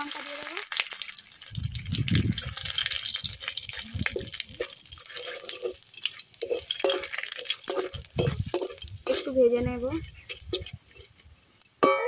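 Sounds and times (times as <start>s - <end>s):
spices sizzling in hot oil: 0.0s - 11.8s
spatula scraping metal pan: 2.4s - 11.3s.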